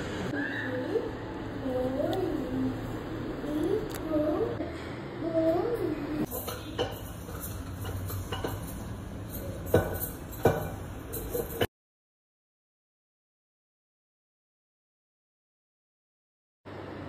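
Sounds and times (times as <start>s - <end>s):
wavering voice-like call: 0.3s - 1.2s
metal plate clinking: 6.3s - 11.7s.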